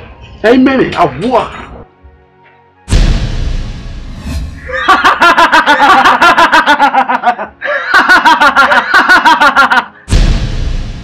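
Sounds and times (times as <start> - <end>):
loud boom: 2.9 - 4.7, 10.1 - 11.0
man laughing wildly: 4.6 - 10.1.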